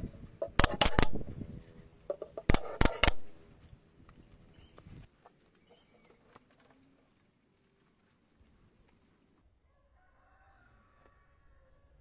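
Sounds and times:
nail gun firing into wood: 0:00.5 - 0:01.3, 0:02.4 - 0:03.4.

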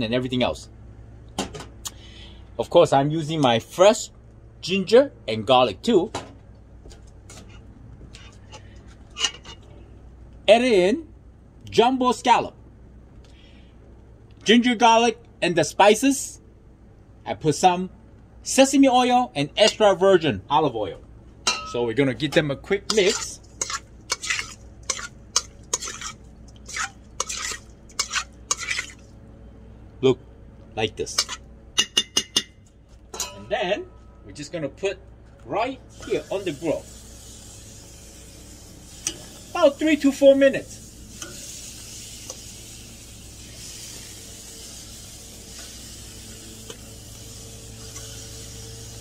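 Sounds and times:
low steady hum: 0:00.0 - 0:49.0
wet squelching mixing: 0:22.9 - 0:29.2
scallops sizzling on a grill: 0:35.9 - 0:49.0.

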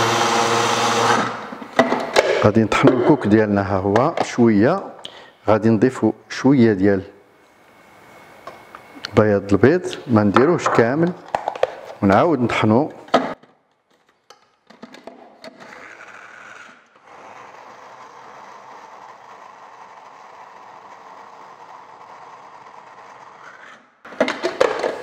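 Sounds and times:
electric food chopper running: 0:00.0 - 0:01.4, 0:16.1 - 0:23.4.

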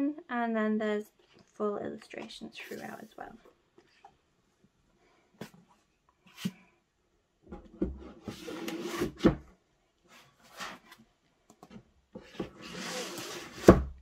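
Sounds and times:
book scraping into slipcase: 0:08.1 - 0:09.4, 0:10.2 - 0:11.0, 0:12.3 - 0:13.8.

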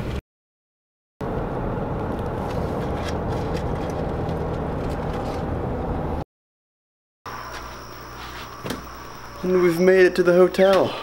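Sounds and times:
car road and engine noise: 0:01.2 - 0:06.2.

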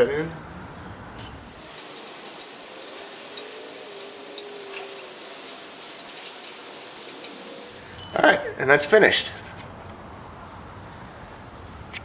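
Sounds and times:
steady hiss: 0:01.0 - 0:10.0.

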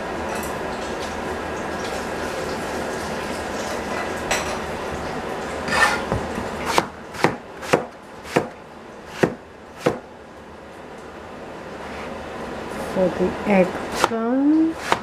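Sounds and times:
cleaver chopping on plastic board: 0:06.1 - 0:10.0, 0:14.8 - 0:15.0.

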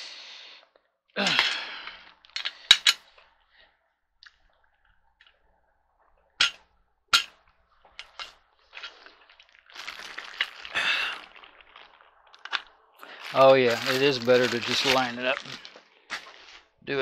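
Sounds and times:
plastic bag crinkling: 0:08.9 - 0:15.8.

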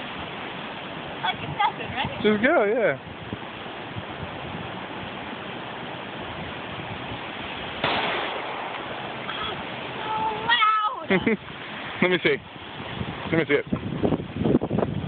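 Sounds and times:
pistol shot: 0:07.8 - 0:08.9.

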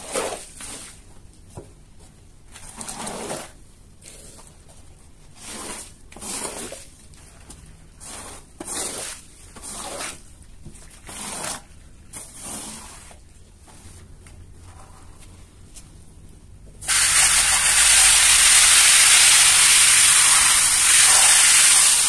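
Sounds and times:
squeegee swishing on wet rug: 0:05.4 - 0:15.3.

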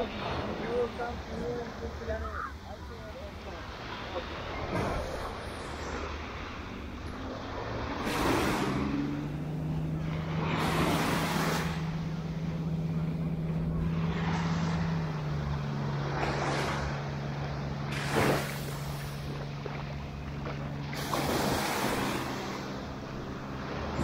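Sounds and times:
engine droning: 0:00.0 - 0:24.0
small waves breaking on shore: 0:00.0 - 0:24.0.

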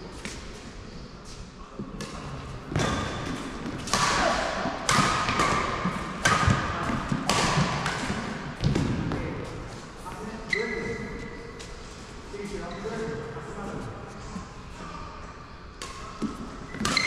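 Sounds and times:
badminton racket hits echoing: 0:02.0 - 0:09.4, 0:15.7 - 0:17.0.

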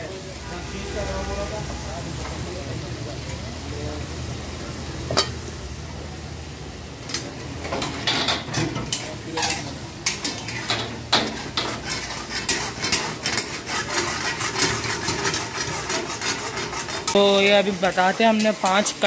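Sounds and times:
gas burners running: 0:00.0 - 0:19.0
gravy sizzling: 0:00.0 - 0:19.0
metal ladles scraping woks: 0:07.0 - 0:19.0.

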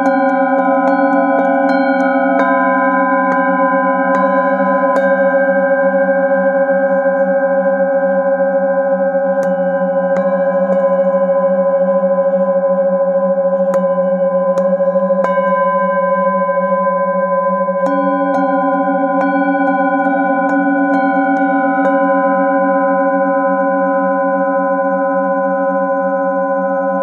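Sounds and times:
singing bowl ringing drone: 0:00.0 - 0:27.0.

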